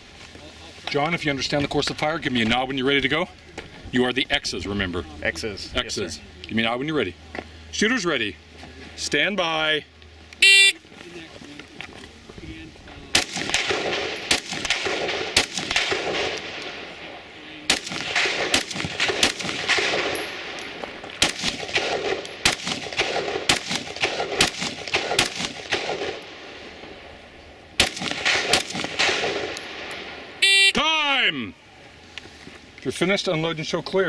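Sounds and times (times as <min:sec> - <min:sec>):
rifle gunshots with echo: 0:13.1 - 0:26.6, 0:27.8 - 0:30.3.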